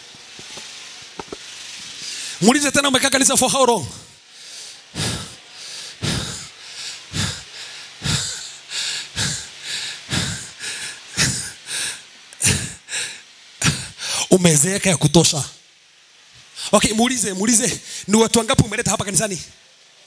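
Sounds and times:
heavy quick breathing: 3.9 - 14.3.

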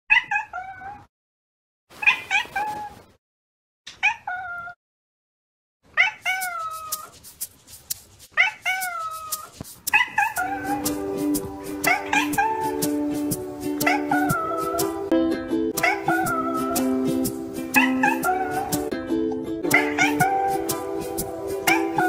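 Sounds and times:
cat meowing: 0.1 - 1.1, 2.0 - 3.0, 4.0 - 4.8, 6.0 - 7.1, 8.4 - 10.9, 11.9 - 12.7, 13.8 - 14.8, 15.8 - 16.8, 17.8 - 18.7, 19.7 - 20.4, 21.7 - 22.0.

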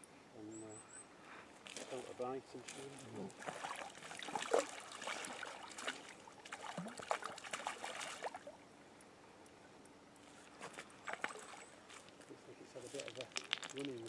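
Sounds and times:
fish splashing at surface: 2.7 - 8.5, 11.1 - 12.1.

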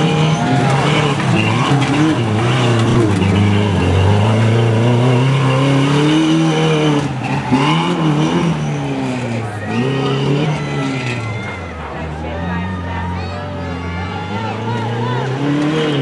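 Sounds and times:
truck engine revving: 0.0 - 16.0.

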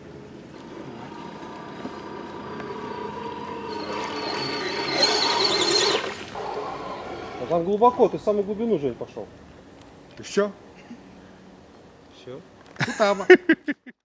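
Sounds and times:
electric motor whining: 0.5 - 8.2
water churning and splashing: 1.4 - 7.4.

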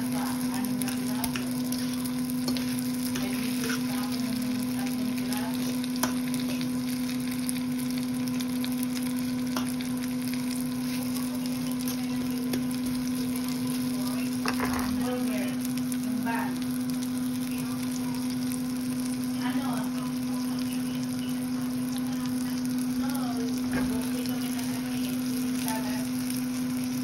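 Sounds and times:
food sizzling in skillet: 0.0 - 27.0
steady low hum: 0.0 - 27.0.

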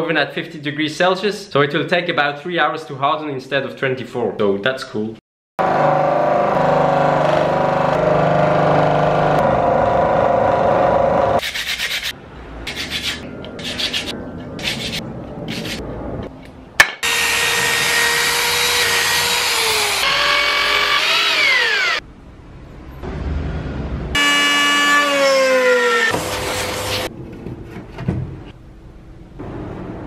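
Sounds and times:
electric scroll saw cutting: 5.6 - 11.4, 17.0 - 22.0, 24.2 - 27.1
electric drill running: 17.0 - 22.0.

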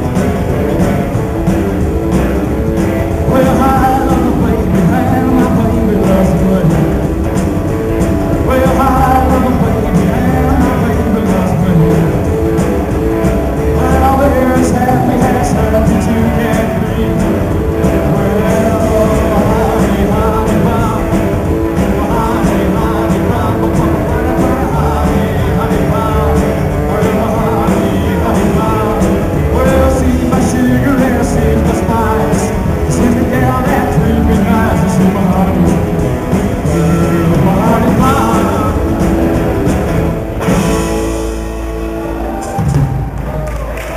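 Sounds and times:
live rockabilly band playing: 0.0 - 43.9
person singing lead vocal: 2.8 - 7.4, 8.3 - 12.6, 13.6 - 39.8
crowd applauding: 41.7 - 43.9.

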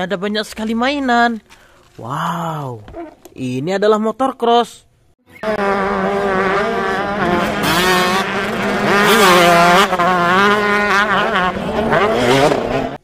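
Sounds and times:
dirt bike engines revving: 5.3 - 13.0.

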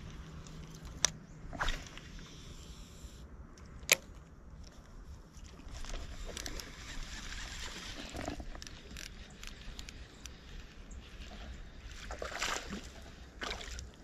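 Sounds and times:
reel spool spinning: 5.6 - 12.0
fishing reel click: 5.9 - 10.5.

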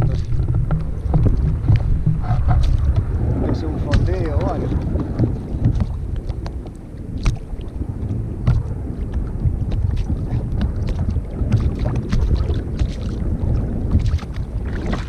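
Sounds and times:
water sloshing against hull: 0.0 - 15.0
wind buffeting microphone: 0.0 - 15.0.

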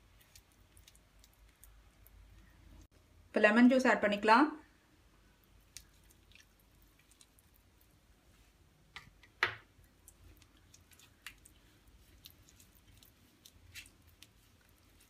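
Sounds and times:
fingers squishing wet paste: 0.0 - 2.6, 5.4 - 8.1, 9.1 - 15.0.

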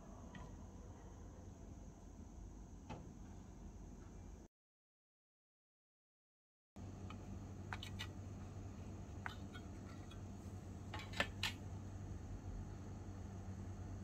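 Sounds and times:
steady low hum: 6.8 - 14.0.

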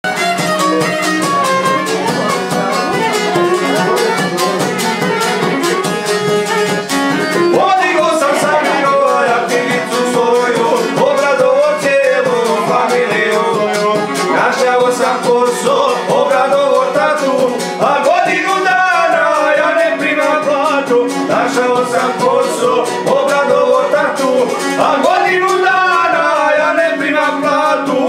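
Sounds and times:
violin melody: 0.0 - 27.7
strummed lute: 0.0 - 28.0.

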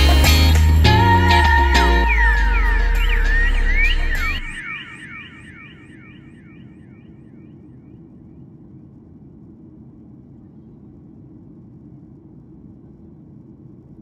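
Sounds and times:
falling electronic sweep: 0.0 - 6.9.

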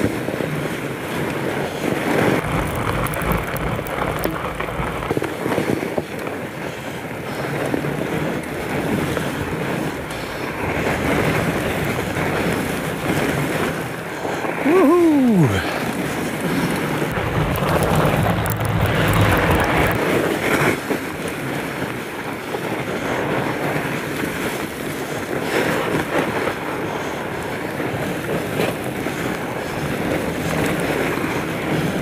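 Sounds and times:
bike tyre and frame rattle: 0.0 - 14.6, 15.6 - 32.0
wind on microphone: 0.0 - 32.0.

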